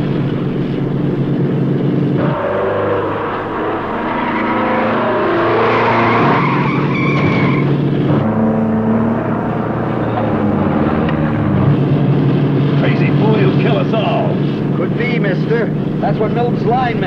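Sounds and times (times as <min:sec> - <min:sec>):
heavy truck engine running hard: 0:00.0 - 0:17.0
tyres squealing: 0:02.2 - 0:07.8.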